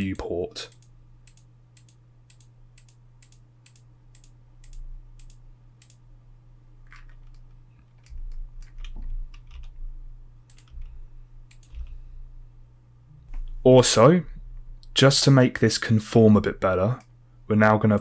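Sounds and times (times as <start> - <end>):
steady low hum: 0.0 - 18.0
keyboard and mouse clicking: 0.1 - 6.0, 6.9 - 9.8, 10.5 - 10.9, 11.5 - 12.0.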